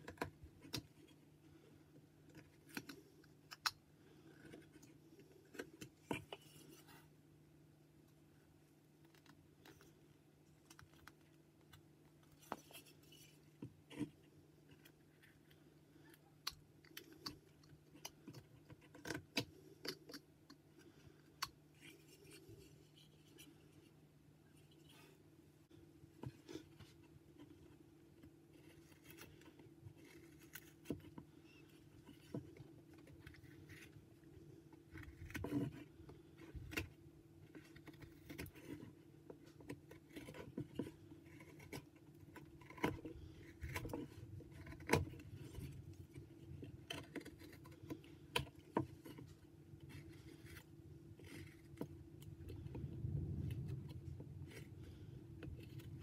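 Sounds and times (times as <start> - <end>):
low hum: 52.0 - 56.0.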